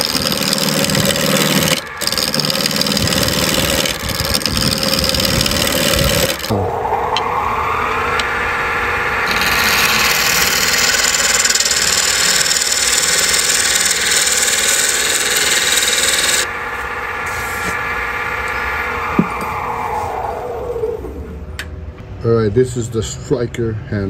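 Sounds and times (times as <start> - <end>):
turning tool scraping wood: 0.0 - 6.5, 9.3 - 16.5
lathe motor whine: 0.0 - 21.8.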